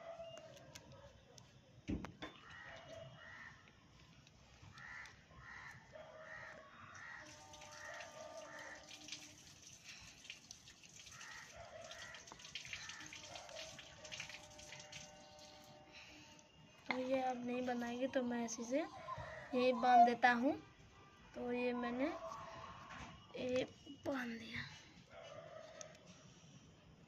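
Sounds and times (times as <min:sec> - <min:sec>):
faint crows cawing: 0:02.3 - 0:03.8, 0:04.5 - 0:09.2, 0:11.0 - 0:13.8, 0:18.1 - 0:20.4.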